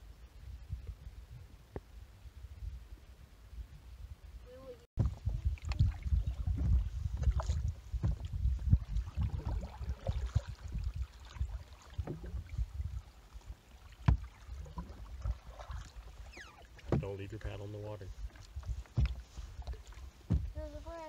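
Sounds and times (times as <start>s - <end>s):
low rumbling on microphone: 0.0s - 21.0s
paddle strokes in water: 5.0s - 21.0s
paddle knocking canoe side: 6.5s - 10.0s, 11.9s - 12.4s, 13.9s - 20.9s.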